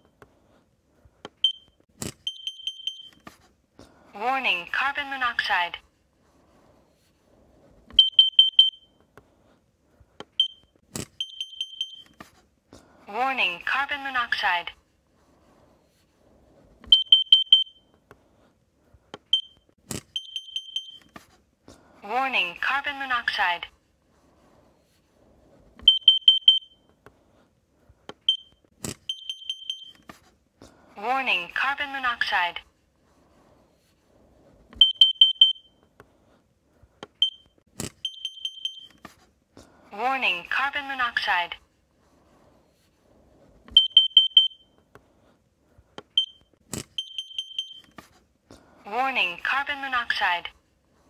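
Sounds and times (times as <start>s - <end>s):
alarm high-pitched beeps: 8.0s - 8.9s, 11.2s - 12.2s, 16.9s - 17.8s, 25.9s - 26.8s, 34.8s - 35.7s, 38.0s - 39.0s, 43.8s - 44.7s.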